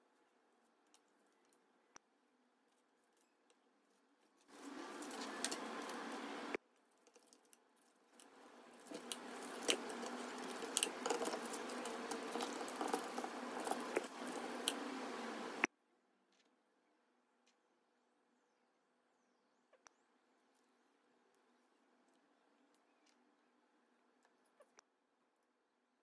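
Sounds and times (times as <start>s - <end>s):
knife carving crispy meat: 4.5s - 7.5s, 8.2s - 15.6s.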